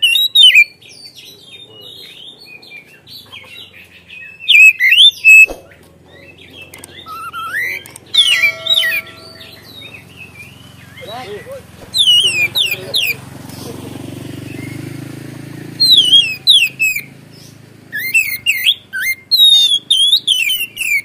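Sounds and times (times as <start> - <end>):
bird whistled song: 0.0 - 13.2, 14.4 - 15.0, 15.6 - 21.0
quiet bird warbling: 0.0 - 13.2
sharp click: 6.6 - 7.0, 7.8 - 8.3.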